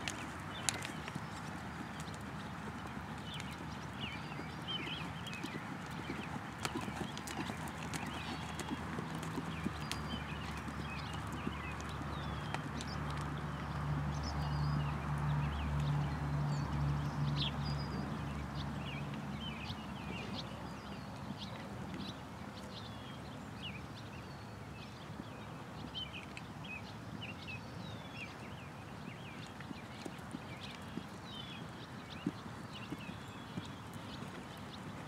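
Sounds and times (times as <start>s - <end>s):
horse trotting on sand: 0.0s - 14.8s, 29.4s - 35.0s
birds chirping: 0.0s - 35.0s.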